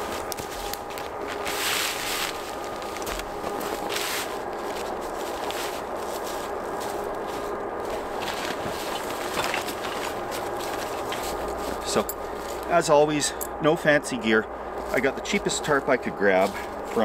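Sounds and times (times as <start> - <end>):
plastic tarp rustling and crinkling: 0.0 - 12.7.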